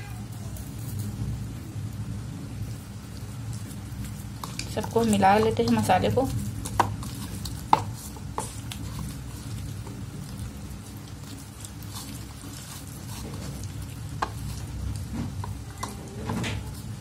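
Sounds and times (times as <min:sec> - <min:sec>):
wet squishing of paste on chicken: 0:02.7 - 0:17.0.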